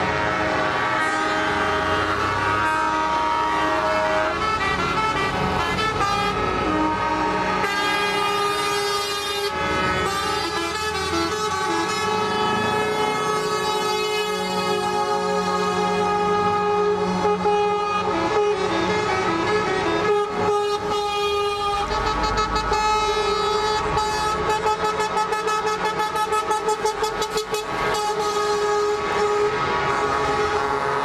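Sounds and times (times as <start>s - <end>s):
diesel engine rumble: 0.0s - 31.0s
truck air horns blasting: 0.0s - 31.0s.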